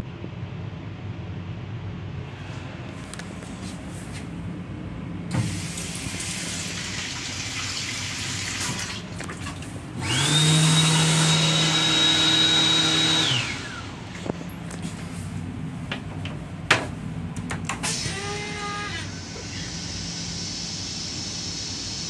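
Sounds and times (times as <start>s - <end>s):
low rumble of moving train: 0.0s - 5.4s, 13.7s - 22.0s
hand dryer motor whining: 5.3s - 22.0s.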